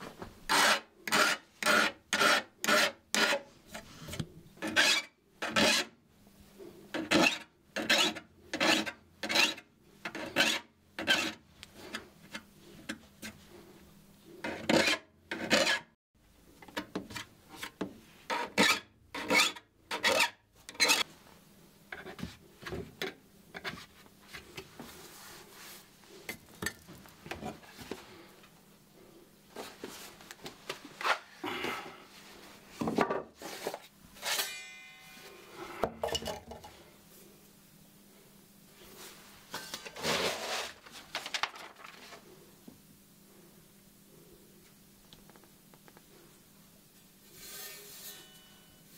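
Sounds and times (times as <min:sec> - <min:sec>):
file rasping on saw teeth: 0:00.5 - 0:03.4.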